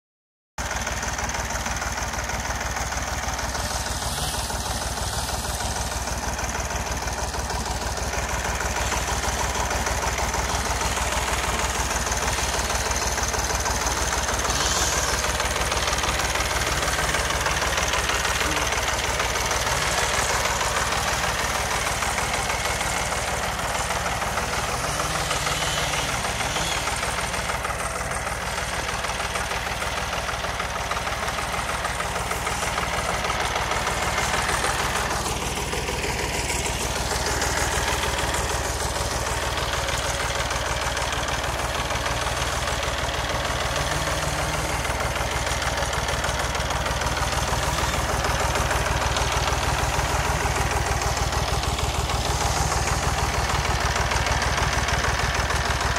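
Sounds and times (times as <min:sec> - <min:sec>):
tractor engine idling: 0:00.6 - 0:55.9.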